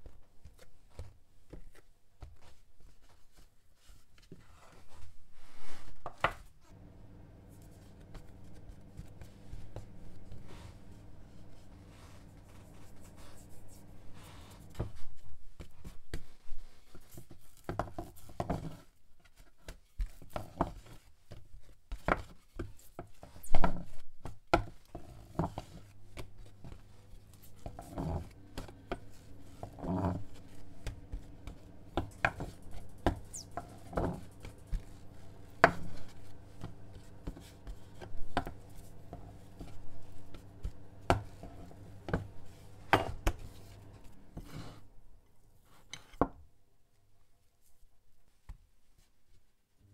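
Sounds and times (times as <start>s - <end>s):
faint low hum: 6.6s - 15.5s
rolling pin knocking and rubbing: 23.1s - 44.8s.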